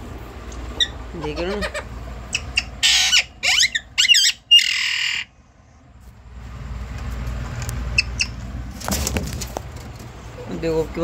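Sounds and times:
parakeet screeching: 0:00.8 - 0:05.3.

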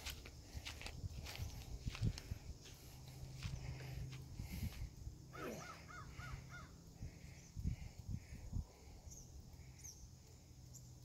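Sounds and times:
faint birds calling: 0:02.6 - 0:11.0.

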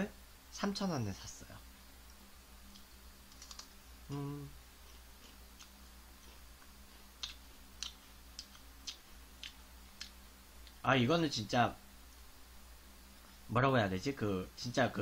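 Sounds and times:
person humming: 0:04.1 - 0:04.6
potato chips being chewed: 0:04.8 - 0:10.8.

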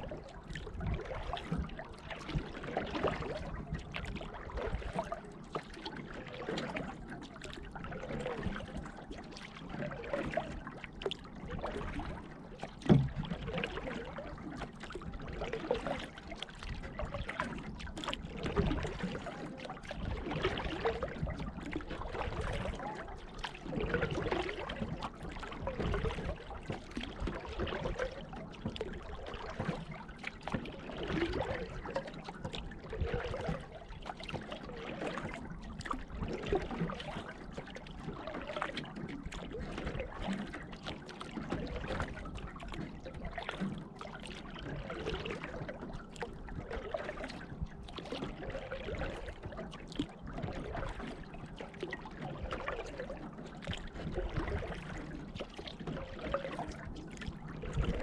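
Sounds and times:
paddle dipping in water: 0:00.0 - 0:58.0
water dripping off paddle: 0:00.0 - 0:58.0.

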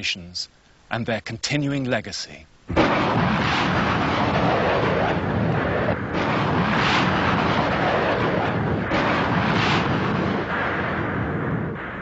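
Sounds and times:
roar of explosions: 0:02.7 - 0:12.0.

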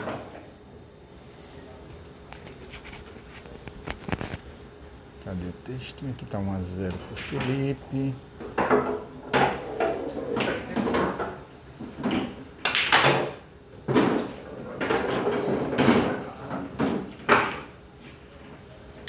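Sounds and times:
pool balls clacking: 0:08.4 - 0:18.6
cue striking ball: 0:08.5 - 0:13.4.

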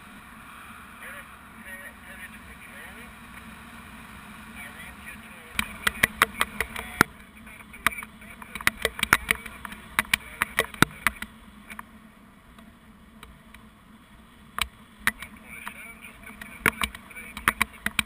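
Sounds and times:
wind rushing over camera: 0:00.0 - 0:13.7
sharp clicks and knocks: 0:05.5 - 0:07.1, 0:07.8 - 0:11.9, 0:14.6 - 0:18.0.

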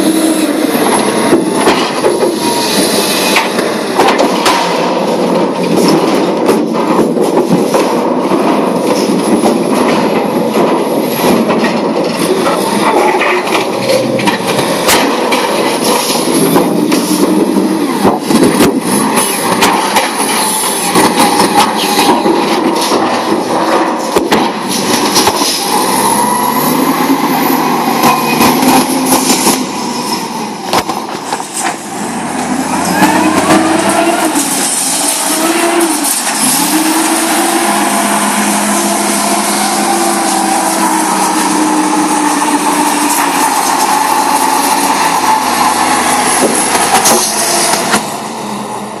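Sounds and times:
metal clanks and knocks: 0:00.0 - 0:36.8
forklift engine revving: 0:00.0 - 0:49.0.

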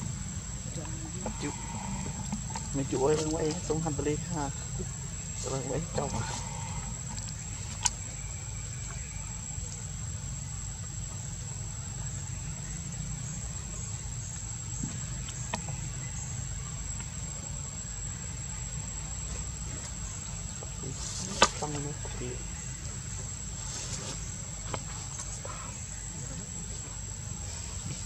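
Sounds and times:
insects chirring: 0:00.0 - 0:28.0.

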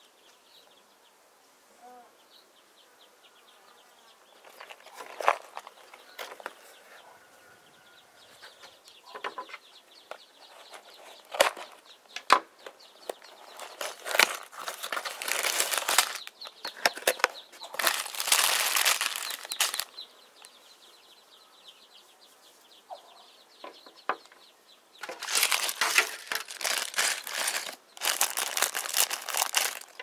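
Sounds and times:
plastic bag crinkling: 0:04.4 - 0:06.5, 0:10.5 - 0:11.8, 0:13.3 - 0:20.0, 0:25.0 - 0:30.0.

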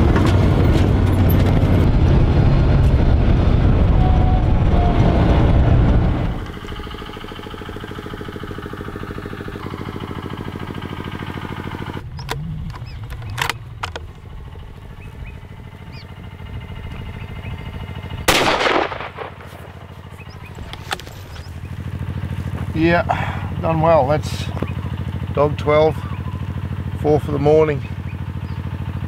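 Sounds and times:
vehicle engine running: 0:00.0 - 0:29.0
sharp clicks: 0:12.0 - 0:14.3
rifle shot: 0:18.3 - 0:19.9.

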